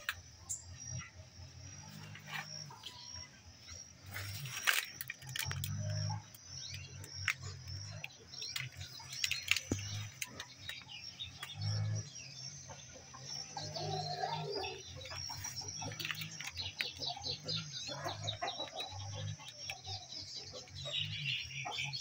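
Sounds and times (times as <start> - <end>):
small birds chirping: 0.0 - 22.0
sharp clicks: 4.5 - 11.8.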